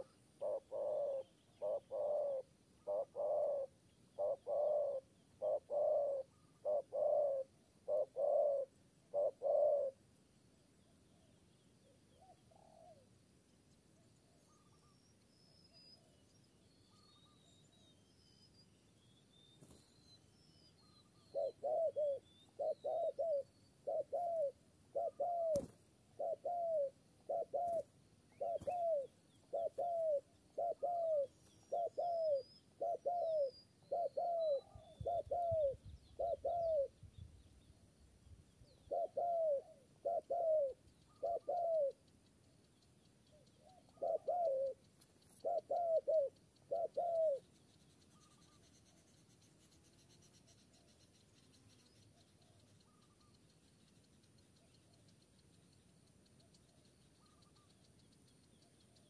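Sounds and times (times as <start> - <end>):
dove cooing: 0.0 - 10.0, 12.2 - 13.1, 21.2 - 37.0, 38.8 - 42.0, 43.6 - 47.5
faint high bird chirps: 0.0 - 59.0.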